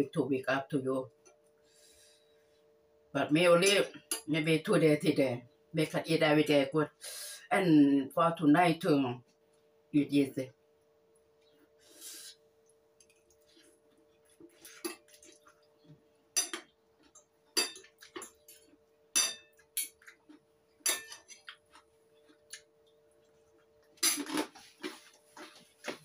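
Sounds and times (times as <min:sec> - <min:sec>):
faint steady hum: 0:00.0 - 0:26.0
cutlery clinking on ceramic plate: 0:16.4 - 0:16.7, 0:17.6 - 0:18.4, 0:19.2 - 0:20.1, 0:20.8 - 0:21.5.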